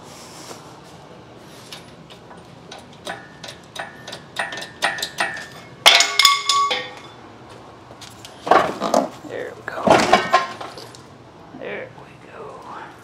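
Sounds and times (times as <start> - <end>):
hydraulic hoist metallic clicks: 1.7 - 5.6
loud ringing metallic clank: 3.1 - 7.2.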